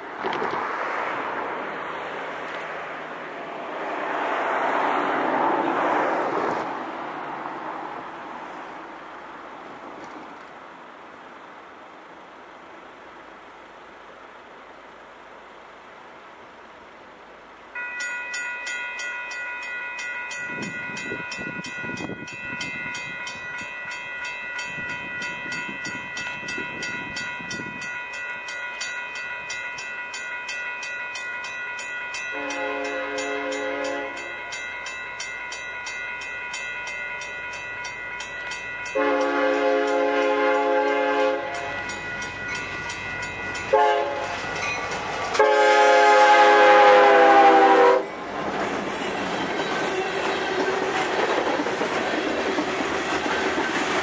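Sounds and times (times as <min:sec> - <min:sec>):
crossing bell ringing: 0:17.6 - 0:48.2
locomotive air horn blasts: 0:32.3 - 0:34.4, 0:39.0 - 0:41.9, 0:43.7 - 0:44.4, 0:45.4 - 0:48.1.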